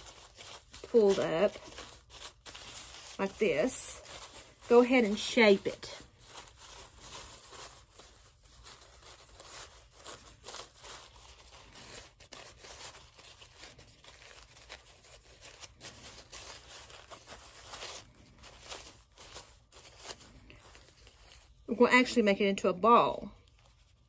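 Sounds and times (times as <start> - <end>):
plastic sheeting rustling: 0.0 - 24.0.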